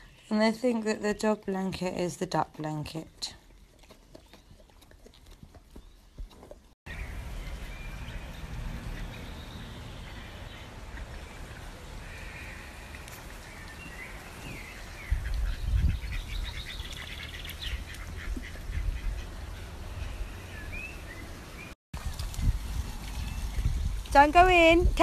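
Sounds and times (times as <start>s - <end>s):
ducks calling: 14.4s - 21.3s.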